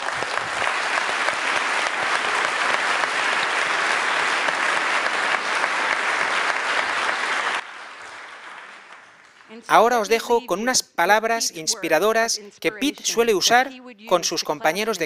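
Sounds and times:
audience applause: 0.0 - 13.4.

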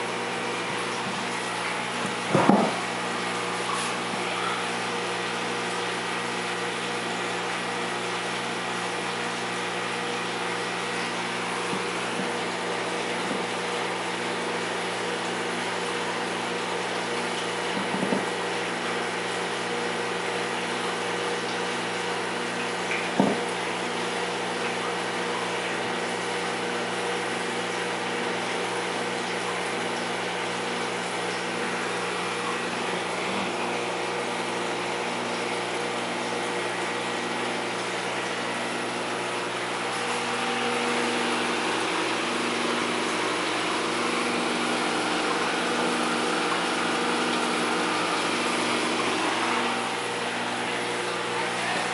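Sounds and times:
aquarium pump hum: 0.0 - 51.9
water circulating hiss: 0.0 - 51.9
brief knock: 2.3 - 2.8, 23.2 - 23.4.

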